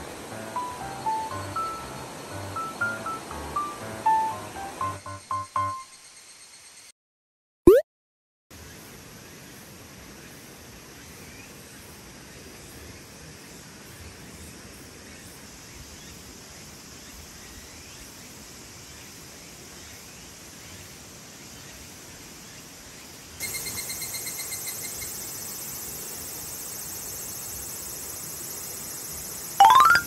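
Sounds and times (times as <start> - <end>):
insects hissing: 23.4 - 29.6.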